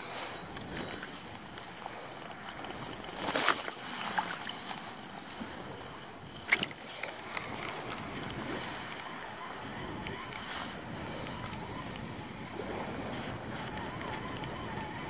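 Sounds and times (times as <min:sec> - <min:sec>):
sea water lapping: 0:00.0 - 0:15.0
wind on microphone: 0:05.1 - 0:15.0.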